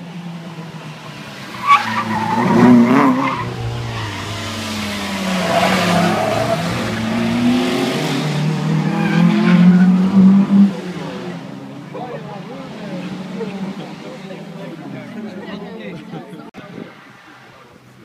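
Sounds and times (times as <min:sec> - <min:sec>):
rally car engine revving: 0:01.2 - 0:14.8
tyres skidding and squealing: 0:01.2 - 0:15.1.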